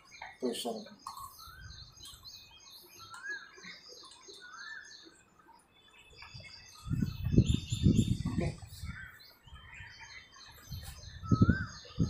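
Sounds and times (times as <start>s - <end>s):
bird calls rising and falling: 0.0s - 12.0s
birds chirping faintly: 0.0s - 12.0s.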